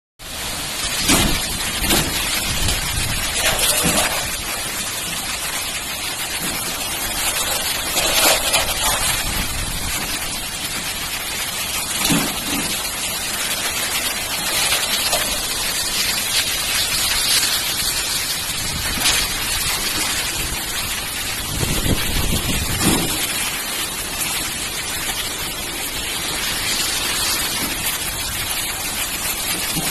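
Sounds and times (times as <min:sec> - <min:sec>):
heavy rain: 0:00.2 - 0:29.9
strong wind: 0:00.8 - 0:04.6, 0:08.2 - 0:11.1, 0:15.7 - 0:24.1.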